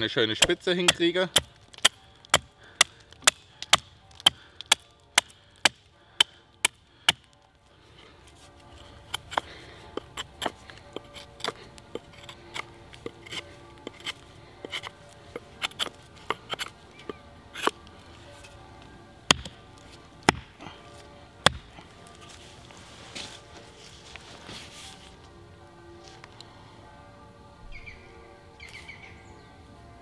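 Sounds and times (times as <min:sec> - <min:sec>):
background music: 0:00.0 - 0:30.0
axe chopping wood: 0:00.4 - 0:07.3, 0:09.0 - 0:16.7, 0:19.3 - 0:20.6, 0:21.4 - 0:21.8.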